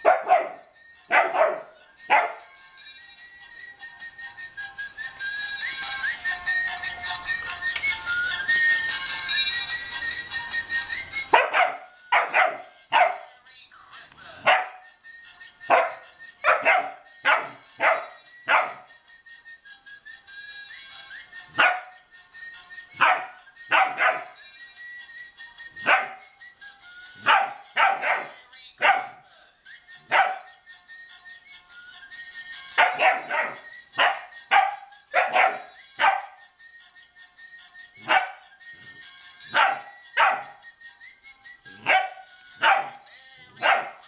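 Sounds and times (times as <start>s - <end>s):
puppy barking: 0.0s - 2.5s, 11.3s - 13.3s, 14.4s - 14.8s, 15.7s - 18.9s, 21.6s - 22.0s, 23.0s - 24.4s, 25.8s - 26.3s, 27.2s - 29.2s, 30.1s - 30.5s, 32.8s - 36.4s, 38.0s - 38.4s, 39.5s - 40.6s, 41.8s - 44.0s
toy playing electronic tune: 0.0s - 44.0s.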